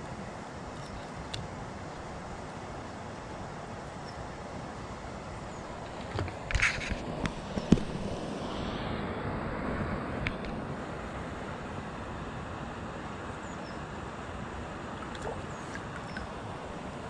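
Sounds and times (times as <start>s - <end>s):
wind noise on microphone: 5.5s - 11.1s
light water splashing: 14.8s - 17.0s.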